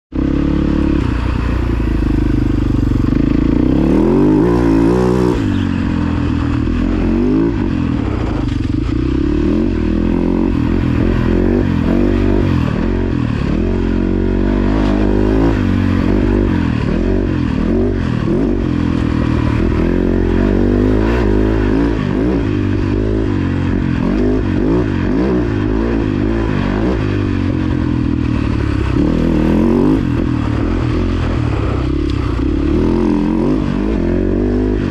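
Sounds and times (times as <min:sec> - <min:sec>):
dirt bike engine revving: 0:00.1 - 0:34.9.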